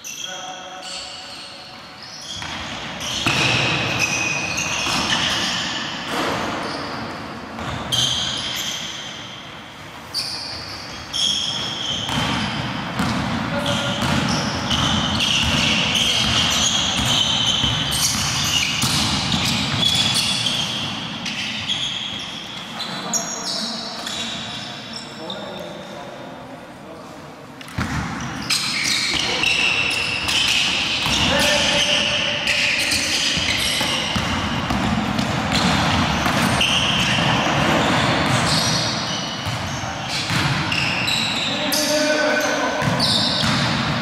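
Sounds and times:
indistinct voices in gym: 0.0 - 18.8, 19.4 - 44.0
basketball bouncing on hardwood: 13.0 - 13.3.

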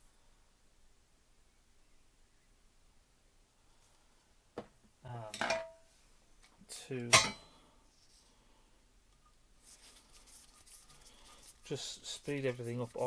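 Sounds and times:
sharp metallic clack: 7.1 - 7.5.

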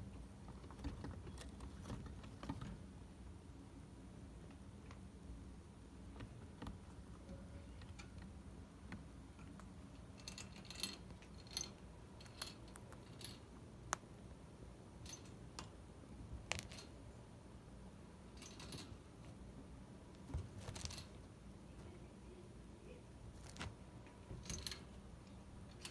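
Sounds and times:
chinchillas moving in wire cage: 9.4 - 13.5, 18.3 - 19.1, 20.2 - 21.2, 23.3 - 25.0.

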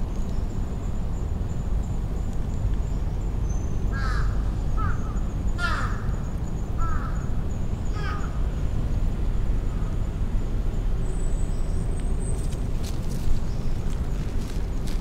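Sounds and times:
crow cawing: 3.9 - 5.0, 5.6 - 6.1, 6.8 - 7.2, 8.0 - 8.4.

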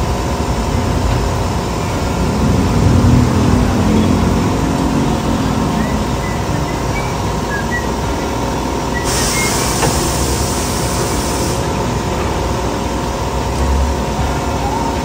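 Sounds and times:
vehicle engine running: 0.0 - 15.0
high hiss: 9.0 - 11.8.

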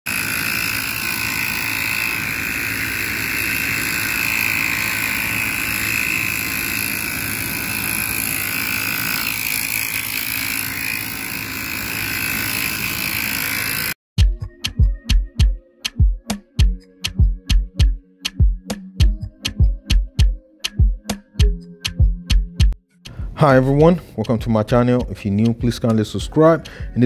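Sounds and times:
pump sprayer hissing foam: 0.1 - 14.0.

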